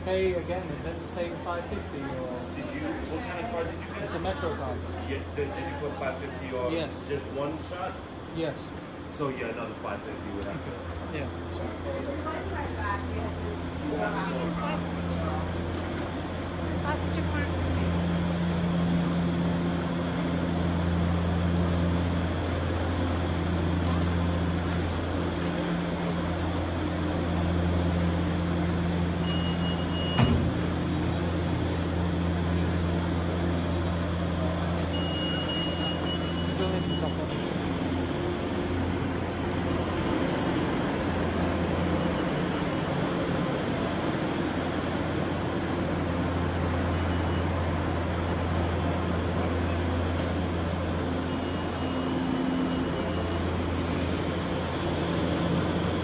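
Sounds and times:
short high beep: 0:29.2 - 0:30.4, 0:34.8 - 0:37.4, 0:51.2 - 0:53.9.

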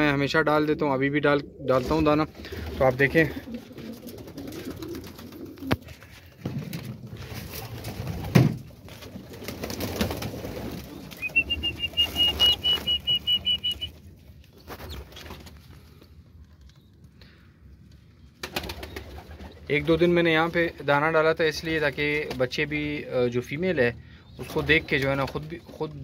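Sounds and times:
pigeons cooing: 0:00.0 - 0:06.1, 0:10.5 - 0:13.9
high repeated peeps: 0:11.3 - 0:13.9.

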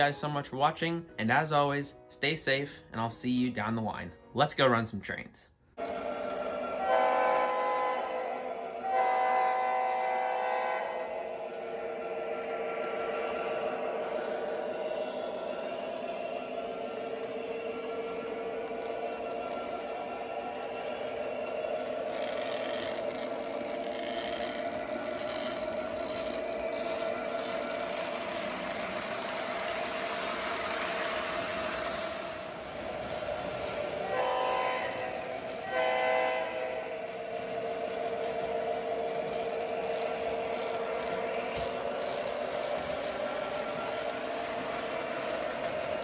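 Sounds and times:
train running drone: 0:05.8 - 0:46.0
model train electronic horn: 0:06.2 - 0:14.0, 0:16.4 - 0:46.0
wheels clicking over rails: 0:11.0 - 0:46.0.

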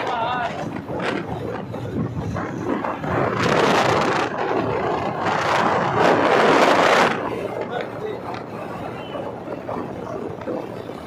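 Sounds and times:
wind and road noise: 0:00.0 - 0:11.0.

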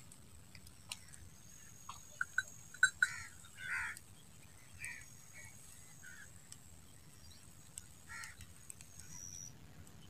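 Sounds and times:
high insect drone: 0:01.0 - 0:06.4.

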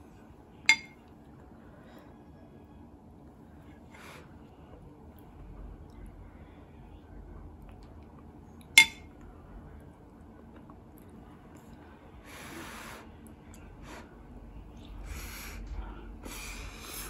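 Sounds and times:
spoon clinking on ceramic plate: 0:00.7 - 0:01.0, 0:08.8 - 0:09.1.

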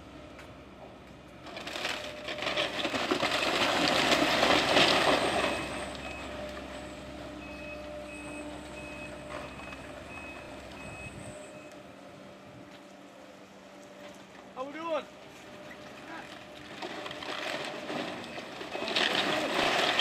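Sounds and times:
falling debris clattering: 0:01.4 - 0:06.6, 0:16.0 - 0:20.0
backup alarm beeping: 0:07.4 - 0:11.7.

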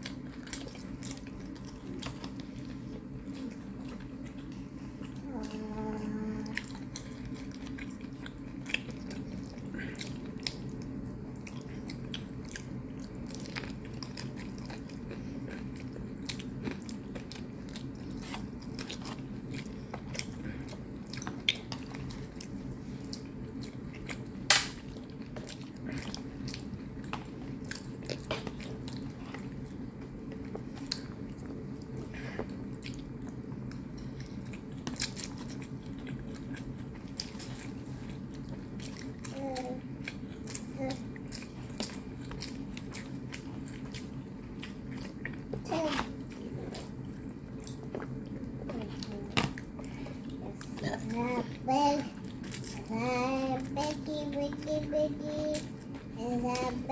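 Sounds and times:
close-up chewing: 0:00.0 - 0:54.6
steady low hum: 0:00.0 - 0:56.9.

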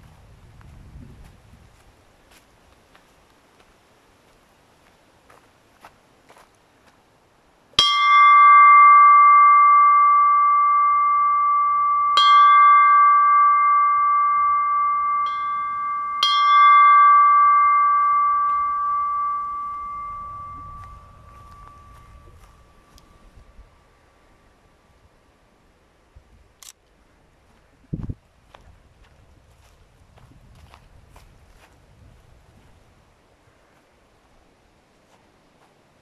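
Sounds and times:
brass bell ringing: 0:07.8 - 0:23.4.

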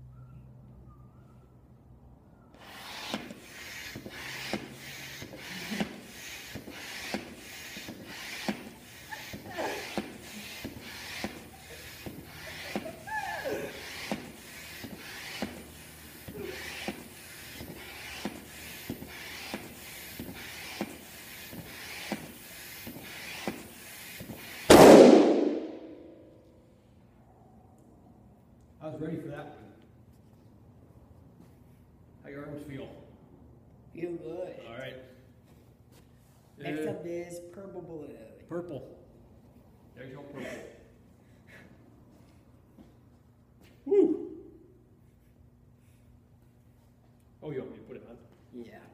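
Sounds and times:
air pump strokes: 0:02.6 - 0:24.8
balloon bursting: 0:02.6 - 0:26.2.

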